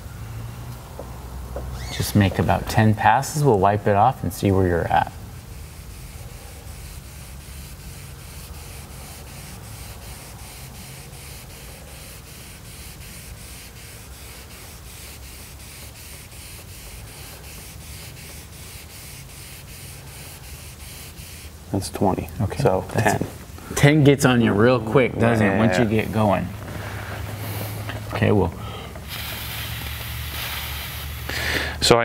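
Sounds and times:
sanding block rasping strokes: 0:05.5 - 0:21.8.

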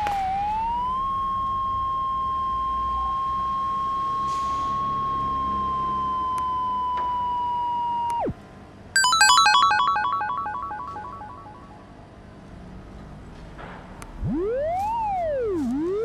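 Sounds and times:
descending electronic chimes: 0:09.0 - 0:11.9, 0:14.2 - 0:16.0
electronic tone gliding down: 0:14.2 - 0:16.0.

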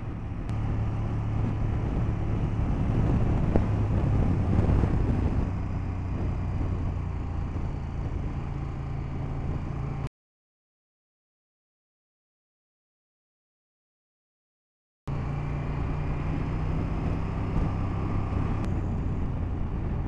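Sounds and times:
motorcycle engine running steadily: 0:00.0 - 0:10.1, 0:15.1 - 0:20.0
wind and road noise: 0:00.0 - 0:10.1, 0:15.1 - 0:20.0.

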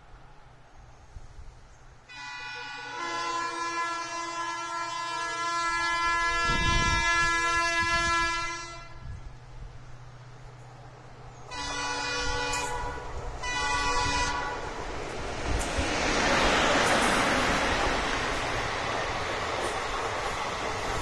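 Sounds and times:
locomotive air horn blast: 0:02.1 - 0:09.2, 0:11.5 - 0:14.7.

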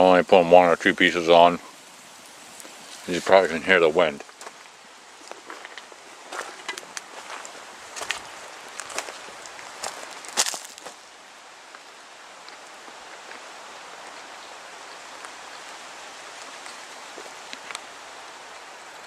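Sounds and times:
wind blowing through trees: 0:00.0 - 0:19.0.

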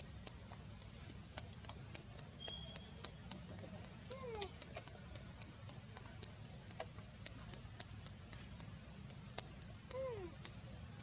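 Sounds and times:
high sharp ticks: 0:00.0 - 0:11.0.

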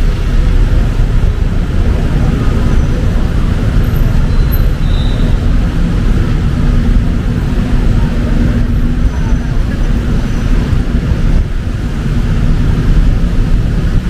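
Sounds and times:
engine hum: 0:00.0 - 0:14.0
rain hissing on wet roads: 0:00.0 - 0:14.0
rumble of traffic: 0:00.0 - 0:14.0.

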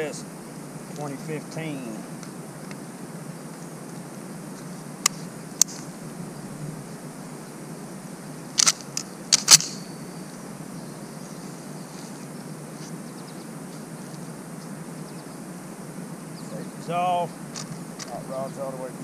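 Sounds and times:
rifle action metallic clacks: 0:08.6 - 0:09.8.

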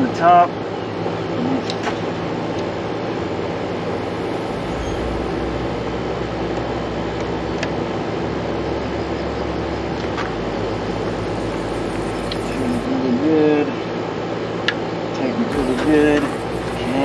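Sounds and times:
steady machine drone: 0:02.2 - 0:17.0
low hum: 0:02.6 - 0:14.2, 0:15.5 - 0:17.0.

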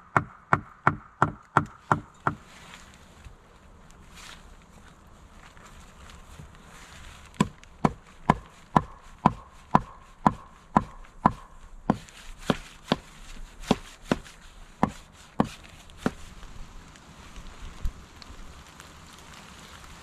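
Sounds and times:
hammer striking wooden posts: 0:00.0 - 0:02.5, 0:07.3 - 0:16.2.

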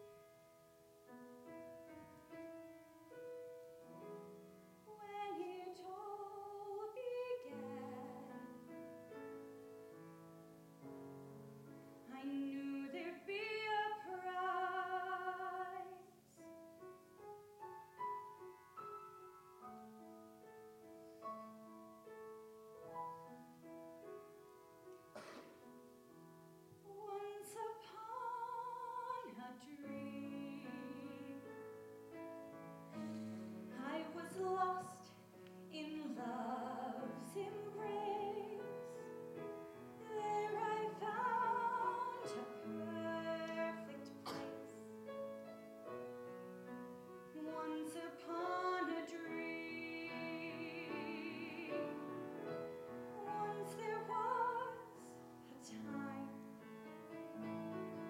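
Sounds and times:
piano accompaniment: 0:00.0 - 0:58.0
woman singing operatically: 0:04.9 - 0:08.3, 0:12.1 - 0:16.1, 0:26.9 - 0:31.4, 0:33.7 - 0:38.7, 0:40.0 - 0:44.4, 0:47.4 - 0:52.0, 0:53.2 - 0:56.3.

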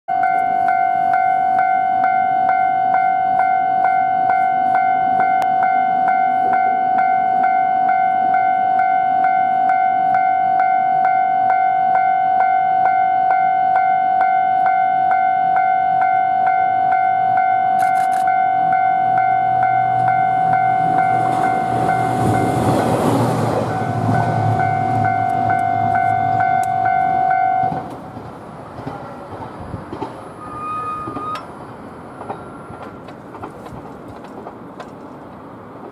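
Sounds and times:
level crossing warning bell: 0:00.1 - 0:27.9
train engine rumble: 0:00.2 - 0:35.9.

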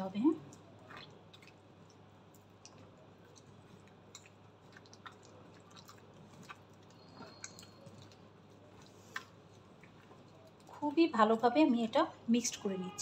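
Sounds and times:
hand squishing mashed potato: 0:00.4 - 0:11.0.

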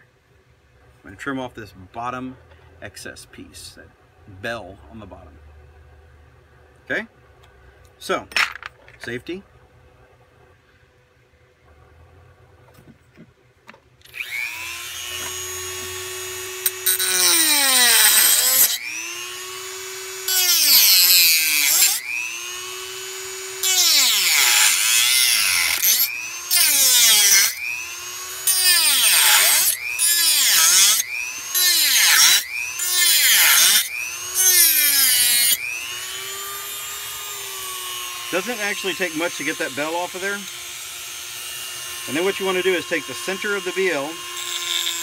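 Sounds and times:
rotary tool cutting metal: 0:14.0 - 0:45.0
rotary tool motor whining: 0:14.0 - 0:45.0.

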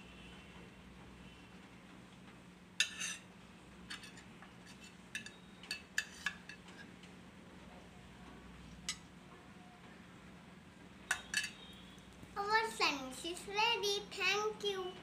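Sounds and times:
spoon clinking on steel plates: 0:02.8 - 0:03.3, 0:03.9 - 0:06.8, 0:11.1 - 0:11.8.

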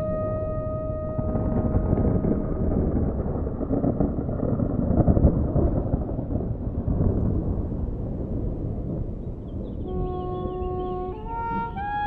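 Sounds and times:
background music note: 0:00.0 - 0:03.0, 0:09.9 - 0:12.0
wind buffeting microphone: 0:00.0 - 0:12.0.

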